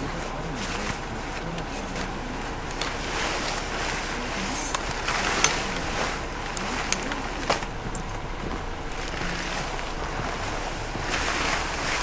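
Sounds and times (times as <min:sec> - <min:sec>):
blizzard wind on microphone: 0:00.0 - 0:12.0
sharp clicks and knocks: 0:04.7 - 0:11.6.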